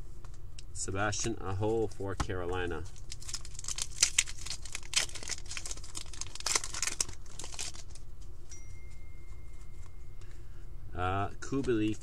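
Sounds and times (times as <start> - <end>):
plastic wrapper crinkling and tearing: 2.8 - 8.2.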